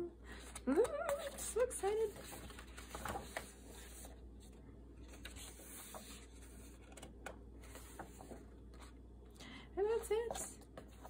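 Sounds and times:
paper page rustling: 0.5s - 9.0s.

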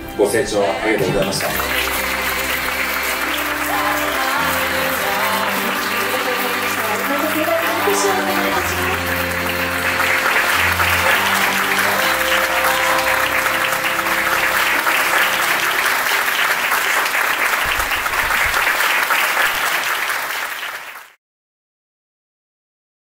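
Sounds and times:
background music of held notes: 0.0s - 17.2s
audience applauding: 0.0s - 21.2s.

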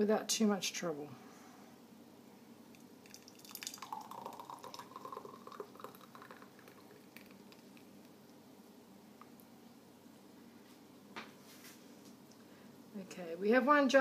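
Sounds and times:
jam pouring and dripping: 2.7s - 8.4s.

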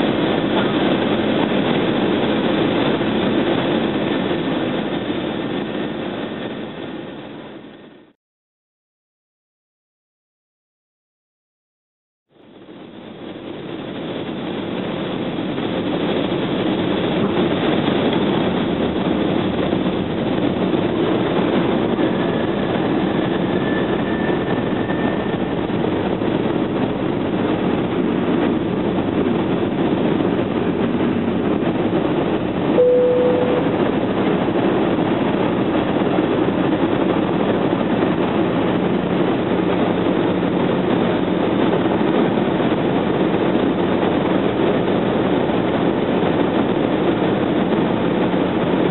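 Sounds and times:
airplane cabin engine roar: 0.0s - 8.2s, 12.3s - 48.9s
brief beep: 32.8s - 33.8s.

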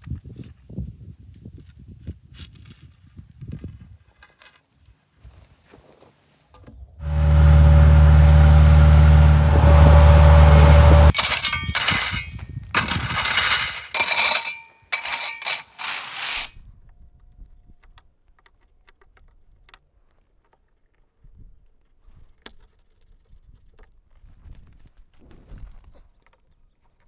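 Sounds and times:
power tool motor running: 7.0s - 11.2s
metal blade scraping gravel: 7.0s - 16.5s.

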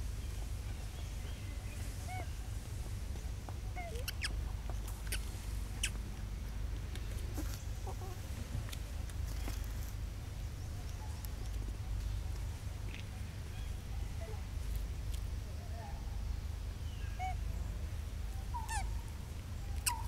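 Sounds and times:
steady low rumble: 0.0s - 20.0s
high squeaky chirps: 3.8s - 4.4s, 18.6s - 18.9s, 19.8s - 20.0s.

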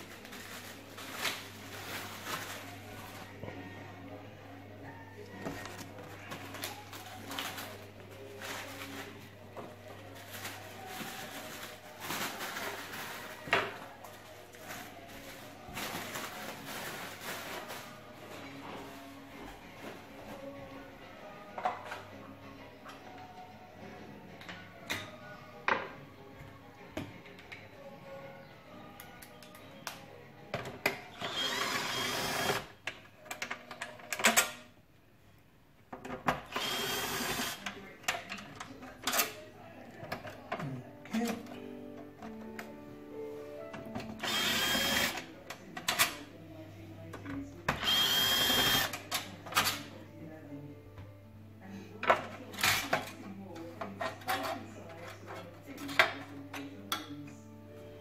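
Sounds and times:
cordless screwdriver whirring: 44.2s - 45.2s, 47.8s - 48.9s.

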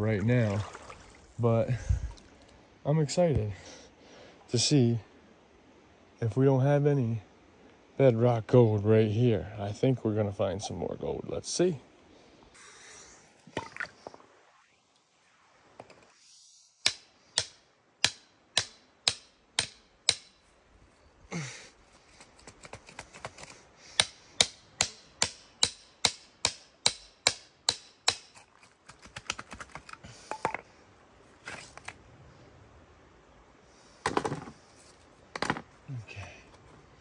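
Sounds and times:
hammer striking chisel on rock: 16.8s - 20.4s, 24.0s - 28.4s.

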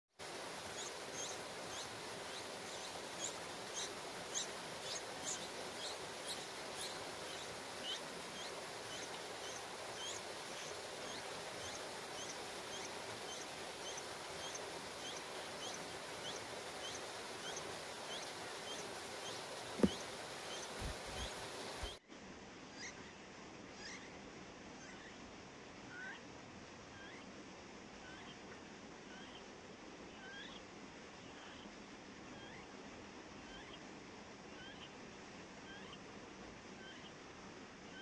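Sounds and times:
steady hiss: 0.2s - 38.0s
nestlings chirping: 0.6s - 22.0s
dull thump: 19.8s - 20.0s.

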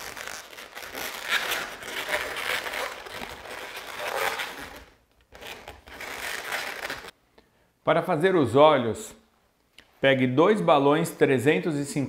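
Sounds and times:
balloons rubbing together: 0.0s - 7.1s.

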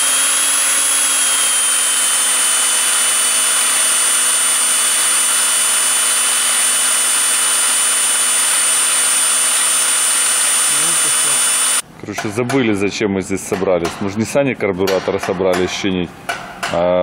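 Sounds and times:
electric drill whining: 0.0s - 11.8s.

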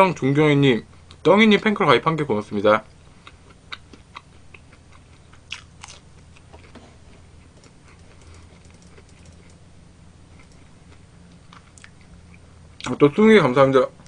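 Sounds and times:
low steady hum: 0.0s - 14.0s
person chewing and biting food: 3.1s - 9.6s, 10.3s - 12.9s
faint clicks: 7.6s - 9.6s.

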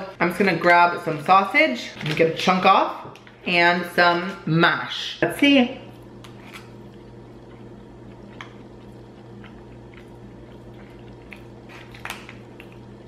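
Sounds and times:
low steady hum: 0.0s - 13.0s
person chewing food: 5.9s - 13.0s.

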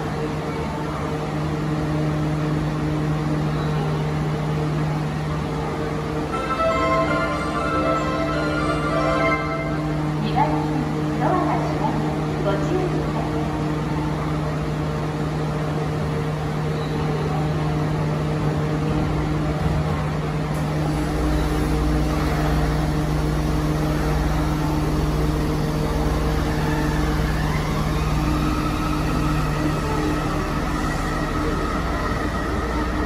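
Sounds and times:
train electrical hum: 0.0s - 33.0s
train motor whine: 20.5s - 33.0s.

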